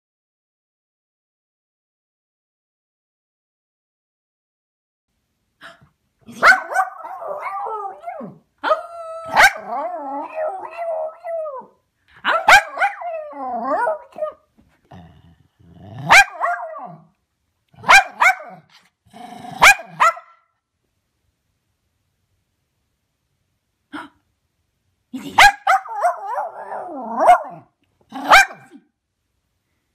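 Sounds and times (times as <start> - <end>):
dog barking and gargling howl: 6.3 - 14.4, 16.0 - 17.1, 19.4 - 20.2, 25.2 - 28.8.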